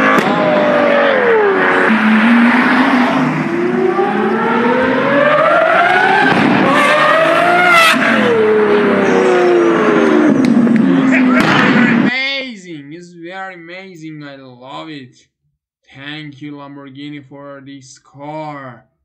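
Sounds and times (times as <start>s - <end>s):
car engine accelerating hard: 0.0s - 12.1s.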